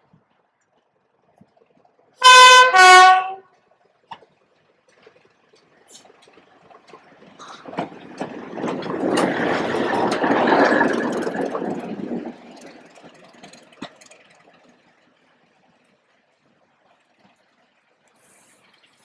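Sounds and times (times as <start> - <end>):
diesel locomotive passing: 1.0 - 19.0
clicks of train wheels: 3.9 - 14.8.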